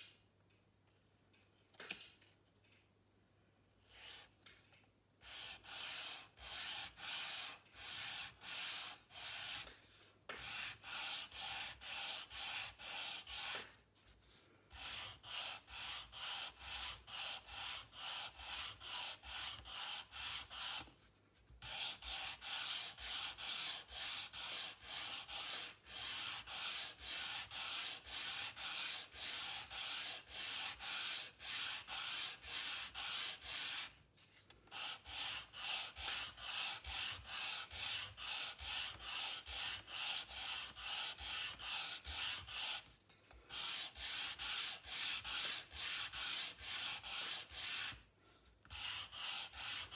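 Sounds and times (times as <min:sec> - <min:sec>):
sanding block on wooden dowel: 0:05.2 - 0:13.8, 0:14.7 - 0:34.0, 0:34.7 - 0:42.9, 0:43.5 - 0:48.1, 0:48.7 - 0:49.9.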